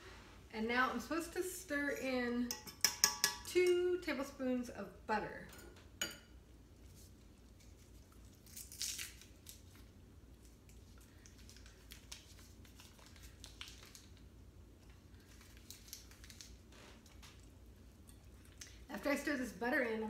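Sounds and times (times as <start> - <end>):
wrapper crinkling: 10.8 - 14.2, 15.2 - 17.3.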